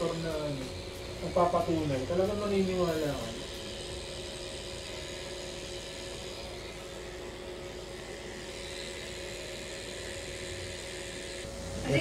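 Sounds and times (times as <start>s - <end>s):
tattoo machine whirring: 0.0s - 12.0s.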